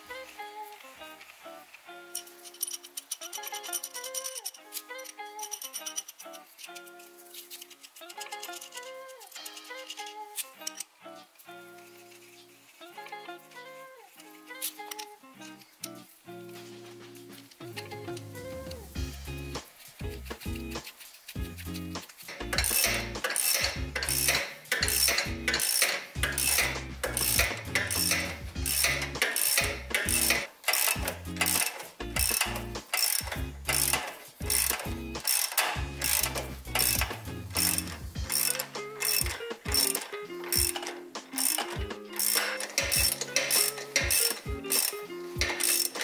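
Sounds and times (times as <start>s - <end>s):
background music: 0.0s - 46.0s
sharp clicking beat: 19.0s - 46.0s
stepping bass line: 34.4s - 35.2s.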